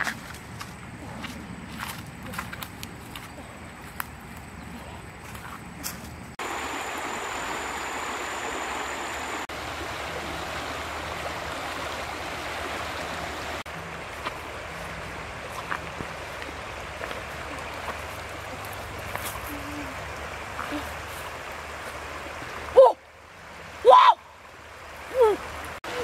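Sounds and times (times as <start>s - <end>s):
stream water rushing: 6.3s - 26.0s.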